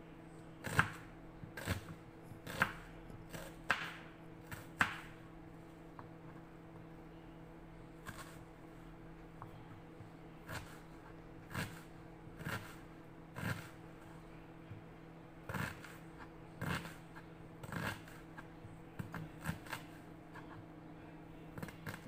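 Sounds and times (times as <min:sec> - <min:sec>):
knife chopping onion: 0:00.6 - 0:05.2, 0:08.0 - 0:08.4, 0:10.4 - 0:13.8, 0:15.5 - 0:20.7.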